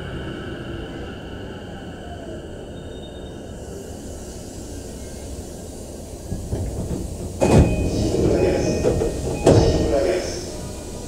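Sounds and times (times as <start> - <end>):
train rumbling to a stop: 0.0 - 11.0
door and platform noise: 6.2 - 11.0
loud thump of doors opening: 6.3 - 10.4.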